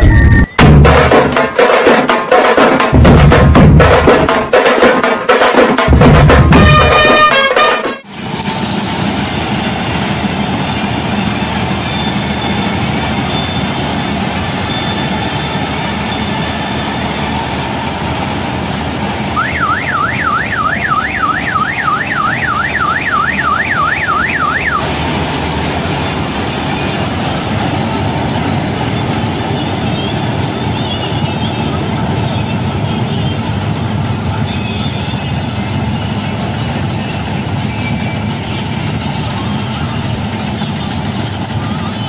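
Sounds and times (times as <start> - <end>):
combine harvester running: 6.0 - 42.0
warbling siren-like alarm: 19.3 - 25.2.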